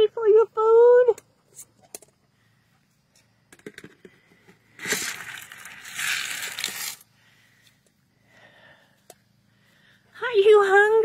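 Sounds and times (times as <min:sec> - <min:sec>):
crinkling rustling wrapping: 0:04.8 - 0:07.0.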